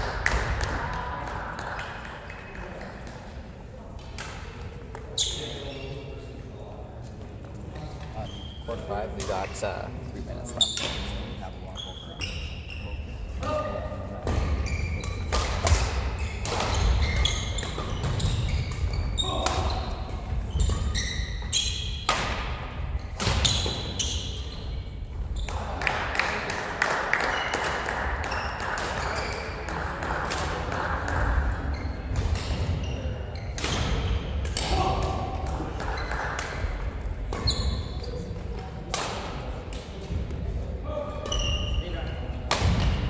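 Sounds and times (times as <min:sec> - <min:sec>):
rackets hitting shuttlecock: 0:14.2 - 0:24.4, 0:33.4 - 0:40.2, 0:42.4 - 0:43.0
shoes squeaking on wooden floor: 0:14.5 - 0:15.3.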